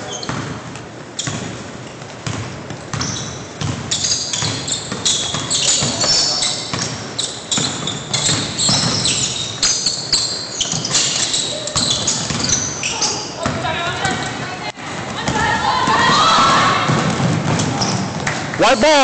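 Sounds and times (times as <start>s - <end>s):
basketball bouncing on wooden floor: 0.0s - 12.8s, 13.4s - 18.4s
sneakers squeaking: 0.0s - 19.0s.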